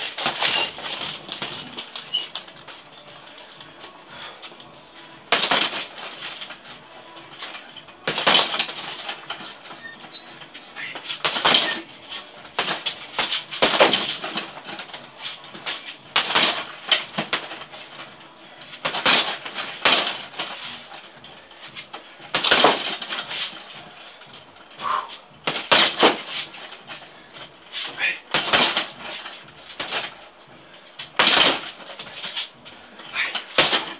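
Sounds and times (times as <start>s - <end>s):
gloves punching heavy bag: 4.5s - 6.2s, 8.0s - 9.3s, 10.9s - 11.9s, 12.5s - 17.6s.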